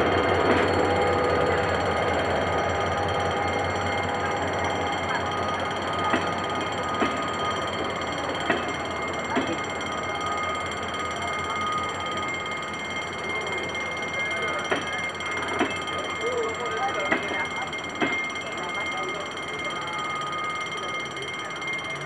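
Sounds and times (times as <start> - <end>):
level crossing alarm ringing: 0.0 - 22.0
train wheels clicking over rail joints: 0.2 - 9.8.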